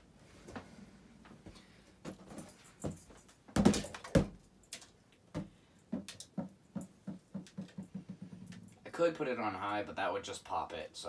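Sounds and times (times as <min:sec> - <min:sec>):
balloon knocking against fan blades: 0:05.3 - 0:08.5.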